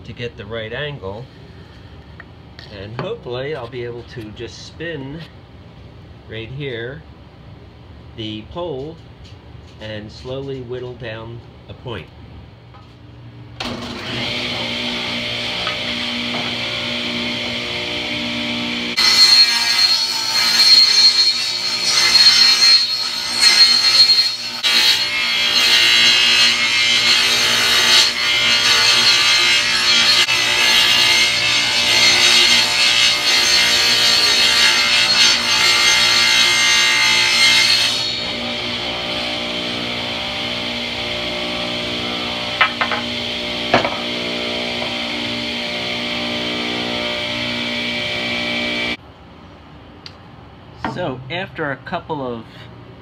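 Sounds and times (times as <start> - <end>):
table saw cutting wood: 13.6 - 49.0.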